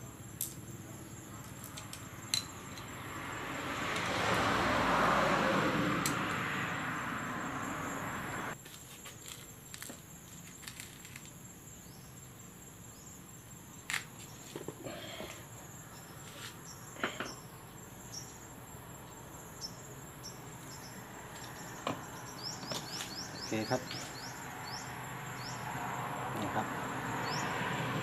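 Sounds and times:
high insect trill: 0:00.0 - 0:28.0
fan parts clicking and knocking: 0:01.4 - 0:03.0.

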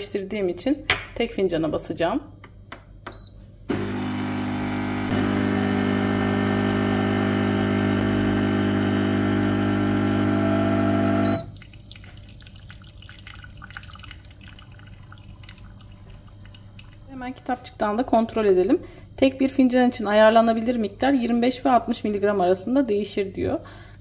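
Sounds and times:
espresso machine pump humming: 0:03.7 - 0:11.5
short high beep: 0:11.2 - 0:11.5
faint dripping into cup: 0:11.5 - 0:17.1.

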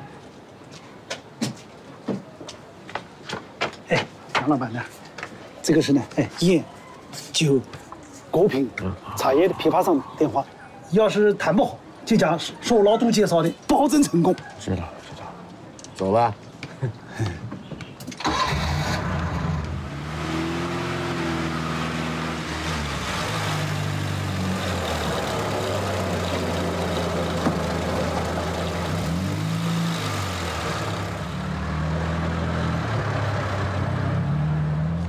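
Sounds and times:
vehicle engine revving: 0:18.3 - 0:35.0.

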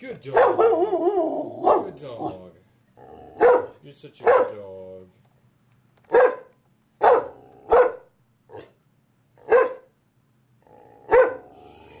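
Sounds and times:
small dog barking: 0:00.3 - 0:02.4, 0:03.4 - 0:04.6, 0:06.1 - 0:08.8, 0:09.4 - 0:09.9, 0:11.1 - 0:11.5.

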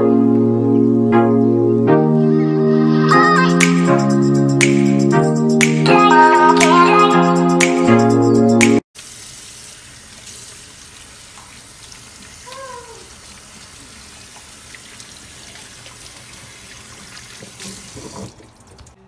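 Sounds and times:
faucet running into metal sink: 0:09.1 - 0:19.0
hands rubbing and rinsing: 0:09.1 - 0:19.0.

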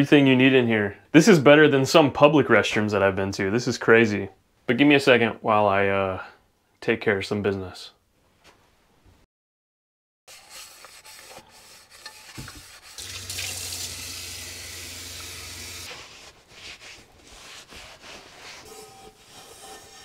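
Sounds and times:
water running from tap: 0:12.4 - 0:15.9.

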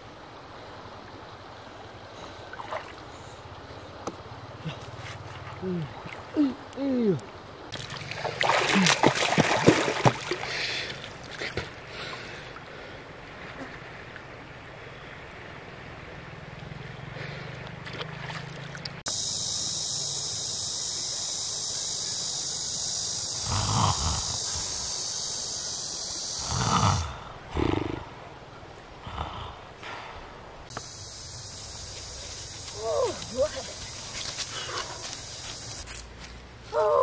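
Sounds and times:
shallow water splashing: 0:07.7 - 0:11.8, 0:17.6 - 0:19.0
steady high hiss: 0:19.0 - 0:36.8.

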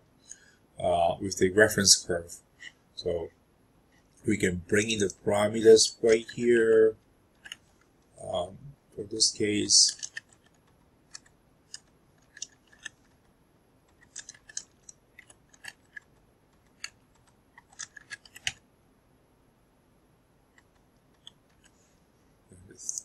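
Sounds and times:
keyboard typing: 0:07.3 - 0:07.8, 0:09.4 - 0:18.6, 0:20.5 - 0:21.8.

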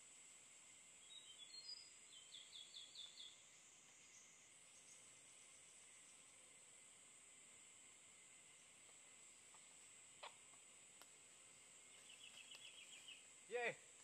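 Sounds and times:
high insect hum: 0:00.0 - 0:14.0
small bird chirping: 0:01.0 - 0:06.4, 0:11.5 - 0:13.7.

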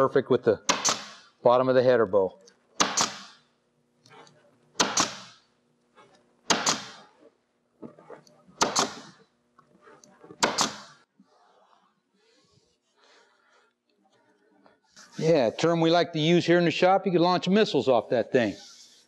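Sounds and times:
staple gun firing: 0:00.7 - 0:01.2, 0:02.8 - 0:03.3, 0:04.8 - 0:05.3, 0:06.5 - 0:07.0, 0:08.6 - 0:09.1, 0:10.4 - 0:10.9.

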